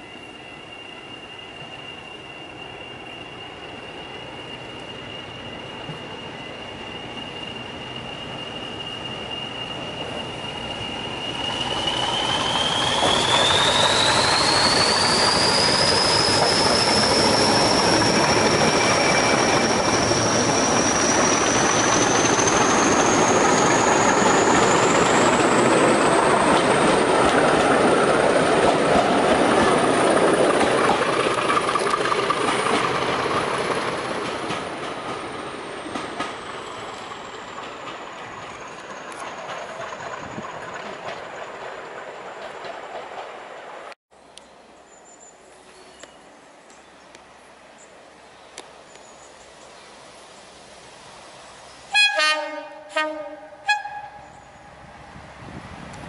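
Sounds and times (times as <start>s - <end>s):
turbocharger whistle: 0.0s - 25.3s
wheels clattering on rail joints: 11.7s - 43.8s.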